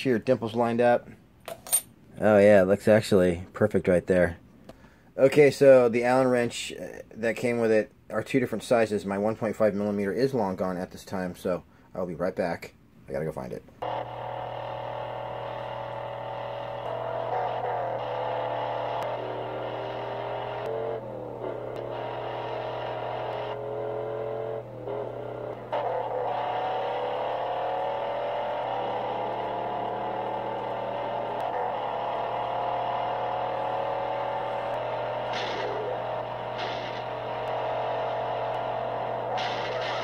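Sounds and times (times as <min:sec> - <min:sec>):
car engines revving hard: 0:13.8 - 0:40.0.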